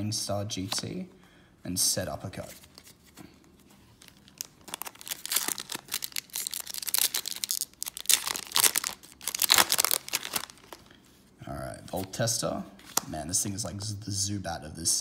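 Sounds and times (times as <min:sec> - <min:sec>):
foil wrapper tearing and crinkling: 0:04.1 - 0:10.8.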